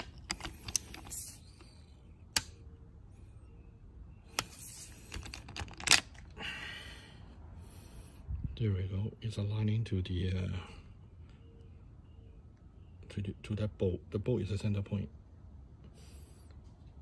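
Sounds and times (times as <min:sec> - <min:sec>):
hand tools clicking and knocking: 0:00.0 - 0:01.3.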